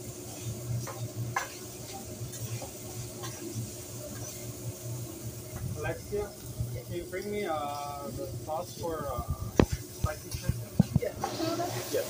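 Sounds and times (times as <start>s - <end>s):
food sizzling: 0.0s - 12.0s
metal spatulas scraping griddle: 0.3s - 4.4s.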